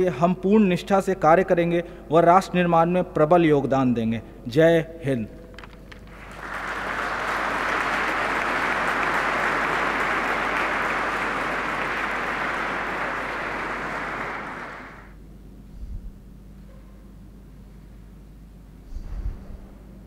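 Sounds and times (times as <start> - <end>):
audience applauding: 6.0 - 15.2.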